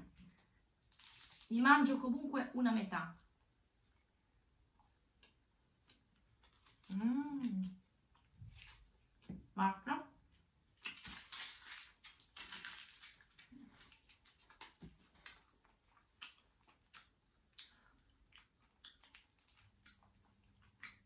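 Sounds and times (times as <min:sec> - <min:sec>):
chocolate being chewed: 0:10.8 - 0:21.0
foil crackling: 0:10.9 - 0:15.5.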